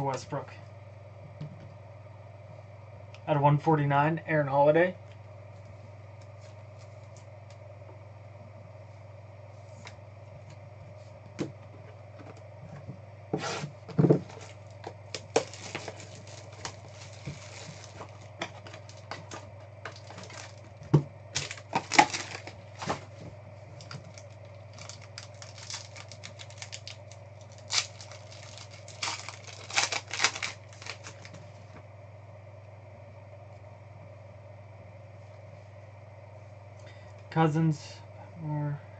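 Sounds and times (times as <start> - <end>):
steady low hum: 0.0 - 38.9
foil packs tearing and crinkling: 13.6 - 23.2, 23.8 - 31.4.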